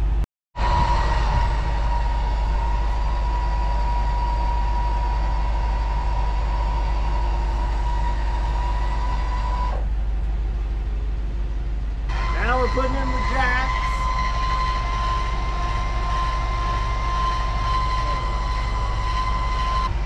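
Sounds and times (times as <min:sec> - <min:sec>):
low rumble: 0:00.0 - 0:12.5
electric motor whine: 0:00.6 - 0:11.0, 0:12.0 - 0:20.0.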